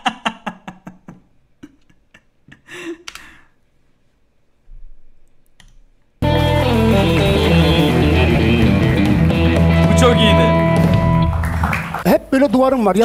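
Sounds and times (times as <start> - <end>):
man laughing: 0.0 - 3.1
loud music: 6.2 - 12.0.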